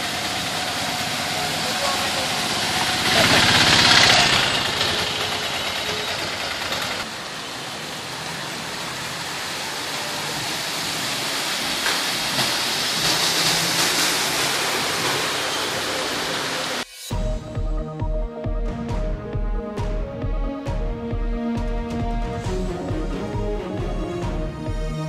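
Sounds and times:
heavy rain falling: 0.0s - 16.8s
vehicles driving through water: 0.0s - 16.8s
faint vehicle engines: 0.0s - 16.9s.

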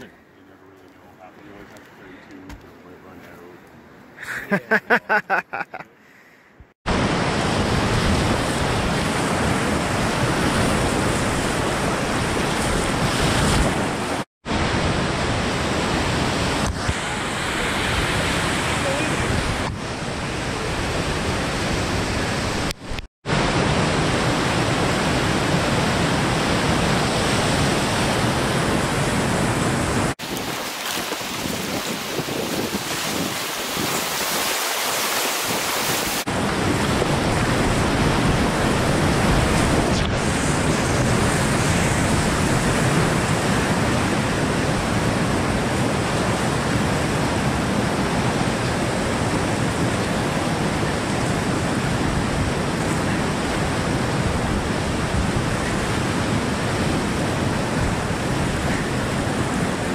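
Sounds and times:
whitewater rapids rushing: 23.3s - 39.5s.

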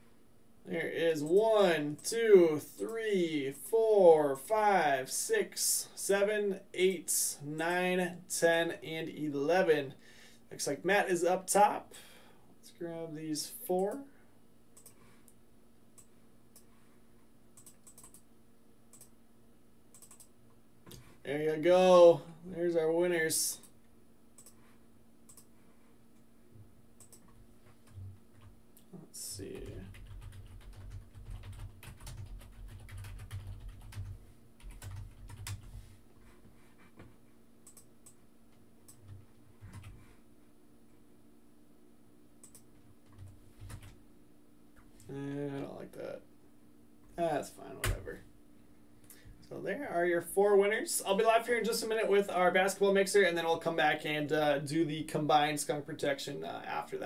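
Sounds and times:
typing on computer keyboard: 17.6s - 18.2s, 20.0s - 20.3s, 29.5s - 35.7s
keyboard and mouse clicking: 17.6s - 18.3s, 19.9s - 20.3s, 25.3s - 25.5s, 27.0s - 28.5s.

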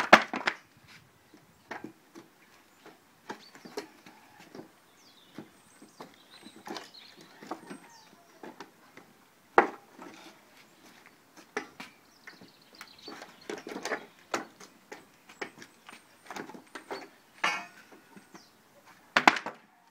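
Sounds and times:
wooden pallet boards creaking and cracking: 0.0s - 0.7s, 12.4s - 18.3s, 19.1s - 19.8s.

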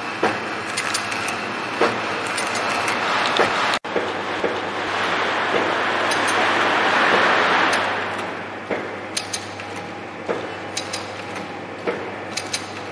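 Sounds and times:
packing machine humming: 0.0s - 12.9s
rushing noise: 2.9s - 8.6s
light mechanical clicks: 7.7s - 12.9s.

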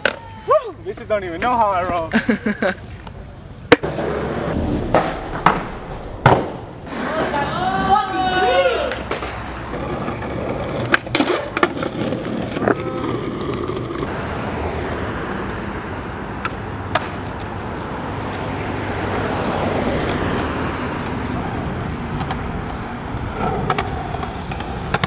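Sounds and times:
skateboard rolling on concrete: 0.0s - 25.0s
skateboard clacks and knocks: 6.2s - 14.1s, 23.6s - 25.0s.

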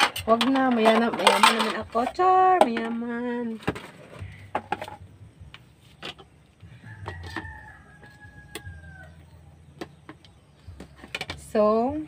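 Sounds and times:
rooster crowing: 6.7s - 9.4s.

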